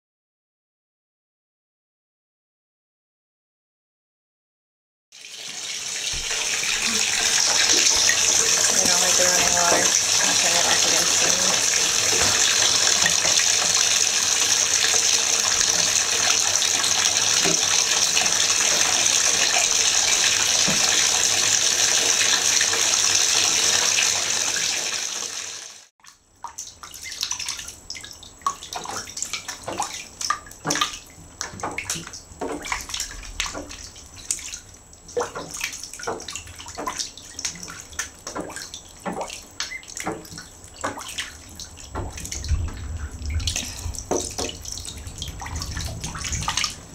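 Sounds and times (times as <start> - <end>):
bath tap running into bathtub: 5.2 - 46.9
ducklings splashing in water: 5.9 - 22.8, 26.4 - 46.9.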